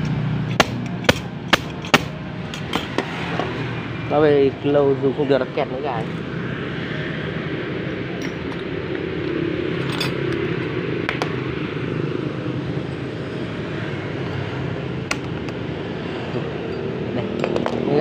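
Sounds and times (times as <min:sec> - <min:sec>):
metal parts clicking: 0:00.0 - 0:03.0, 0:09.8 - 0:10.4.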